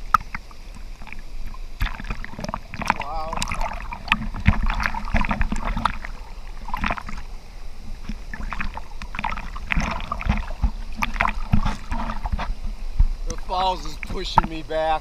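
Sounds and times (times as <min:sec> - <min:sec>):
water splashing against camera housing: 0:00.0 - 0:07.2, 0:08.0 - 0:14.7.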